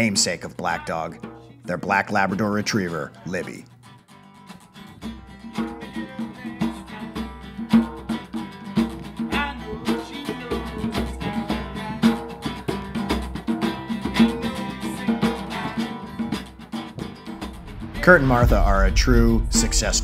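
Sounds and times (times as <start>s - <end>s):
acoustic guitar strumming: 0.0s - 17.9s
hand drum beating: 5.0s - 18.5s.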